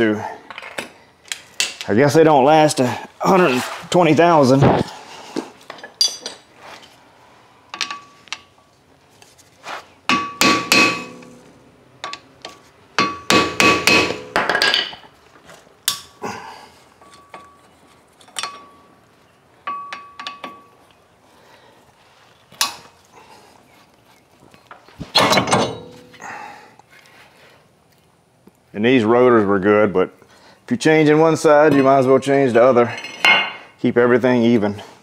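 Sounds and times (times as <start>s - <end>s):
hammer clanking on metal: 10.1s - 11.4s, 13.0s - 15.0s, 25.1s - 26.1s.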